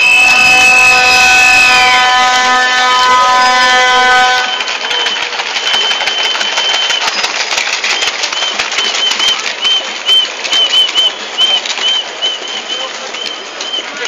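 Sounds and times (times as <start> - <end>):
held horn note: 0.0 - 7.0
whistle blasts: 0.0 - 7.3, 7.9 - 14.0.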